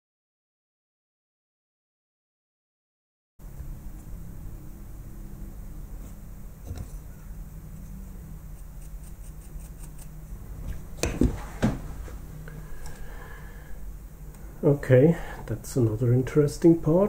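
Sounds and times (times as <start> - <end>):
screwdriver clicking and scraping metal: 8.5 - 11.2
sharp knocks on workbench: 11.0 - 11.9.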